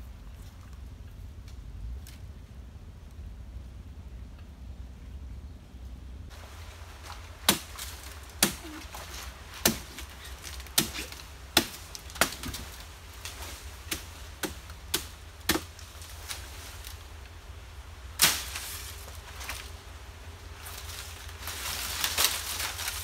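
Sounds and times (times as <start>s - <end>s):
blade chopping palm stalks: 6.4s - 17.1s, 18.2s - 19.8s, 20.6s - 23.0s.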